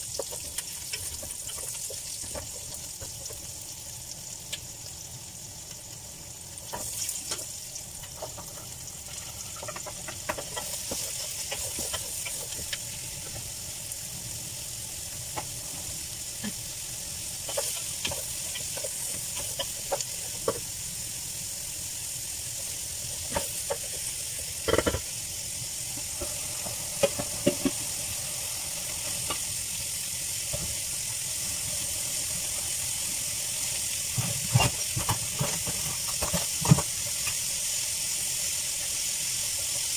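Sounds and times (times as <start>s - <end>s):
vegetables sizzling in hot oil: 0.0s - 39.9s
wooden spoon scraping a pan: 8.1s - 12.8s, 17.4s - 20.7s, 34.1s - 36.9s.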